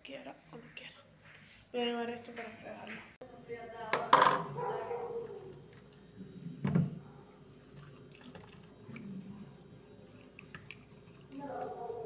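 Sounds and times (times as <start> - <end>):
cup being washed in sink: 4.0 - 11.8.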